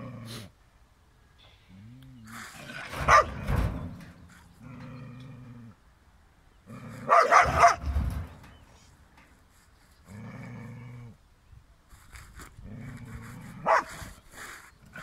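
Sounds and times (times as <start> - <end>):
dog growling: 0.0 - 0.5, 4.6 - 5.8, 6.6 - 7.3, 10.1 - 11.2, 12.6 - 14.2
dog barking aggressively: 2.6 - 3.6, 6.9 - 8.1, 13.6 - 14.1.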